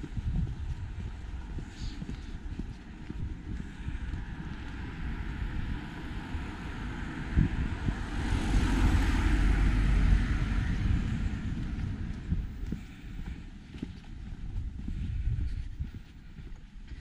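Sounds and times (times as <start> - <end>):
vehicle passing with tyre hiss: 3.3 - 13.6.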